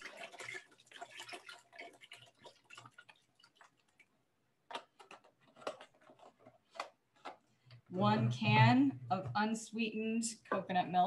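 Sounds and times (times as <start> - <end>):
liquid pouring into a pot: 0.0 - 4.2.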